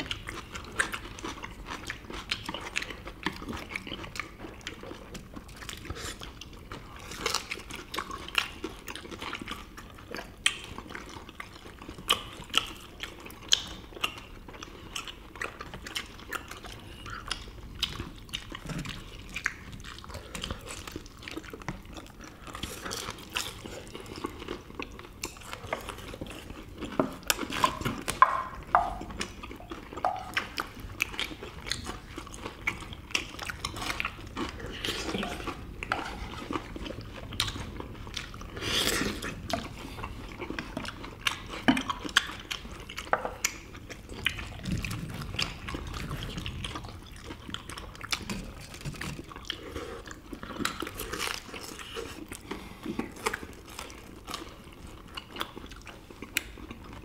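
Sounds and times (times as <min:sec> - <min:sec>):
people biting and chewing: 0:00.0 - 0:57.0.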